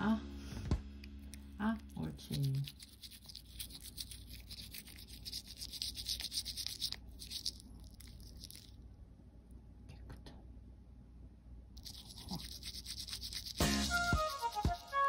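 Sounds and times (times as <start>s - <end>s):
toothbrush scrubbing teeth: 1.0s - 8.7s, 11.8s - 15.0s.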